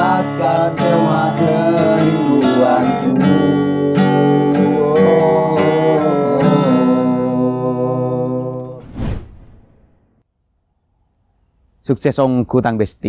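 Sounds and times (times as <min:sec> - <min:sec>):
acoustic guitar strumming chords: 0:00.0 - 0:08.8
short whoosh: 0:08.8 - 0:10.2.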